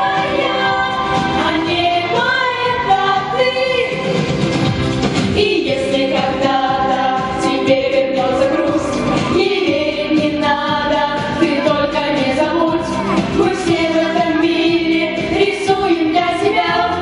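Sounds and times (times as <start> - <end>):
accompanying music with steady beat: 0.0 - 17.0
young voices singing pop song: 0.0 - 17.0.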